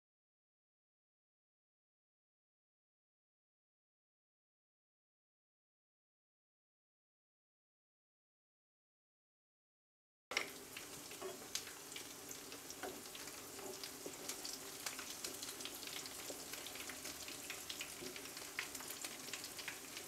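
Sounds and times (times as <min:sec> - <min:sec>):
kebabs sizzling in hot oil: 0:10.3 - 0:20.0.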